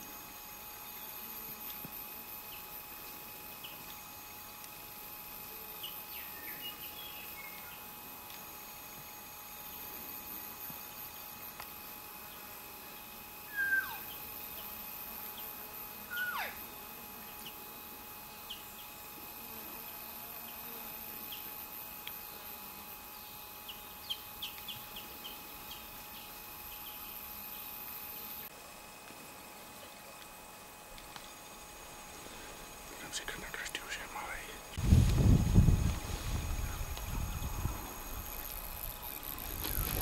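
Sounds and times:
deer calling: 0:13.5 - 0:14.1, 0:16.1 - 0:16.6.

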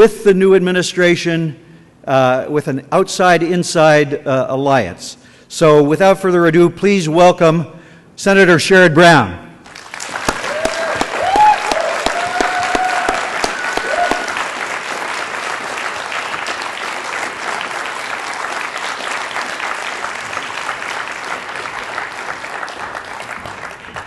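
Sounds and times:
audience applauding: 0:09.7 - 0:24.0.

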